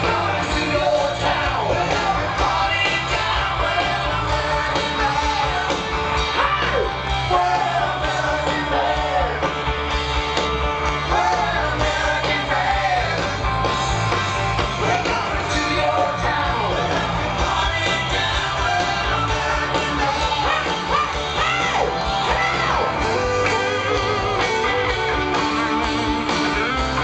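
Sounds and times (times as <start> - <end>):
electric guitar: 0.0 - 27.0
lead singer: 0.0 - 27.0
live rock band: 0.0 - 27.0
steady drum beat: 0.0 - 27.0.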